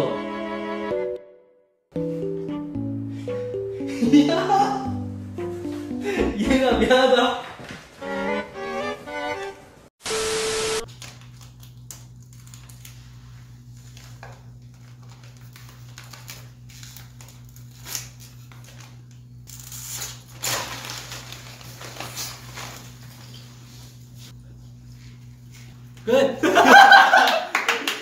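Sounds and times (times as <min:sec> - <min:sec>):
plastic chip bag crinkling: 0:10.9 - 0:13.1, 0:13.8 - 0:23.5.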